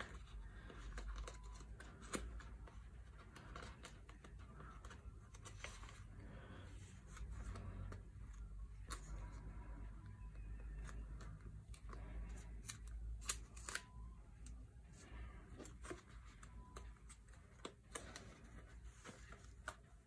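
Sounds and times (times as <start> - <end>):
plastic sleeves rustling and clicking: 0.0 - 6.0.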